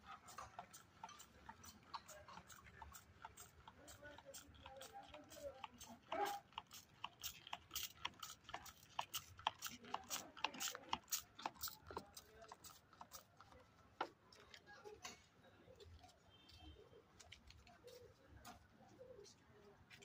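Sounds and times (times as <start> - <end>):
spray bottle spurts: 4.8 - 13.3.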